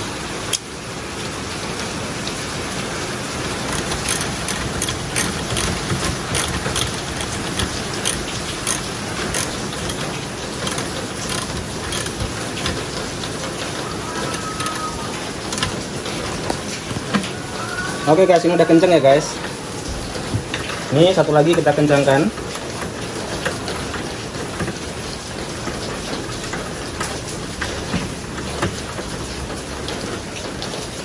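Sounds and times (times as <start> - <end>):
ratchet wrench clicking: 3.6 - 17.3.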